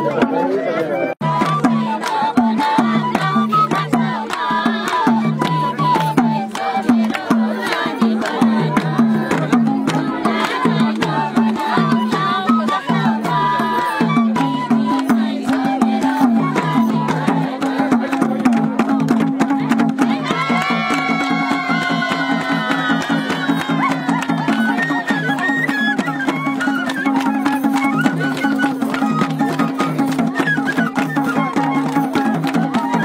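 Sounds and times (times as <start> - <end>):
bamboo flute melody: 0.0 - 18.9, 20.2 - 33.0.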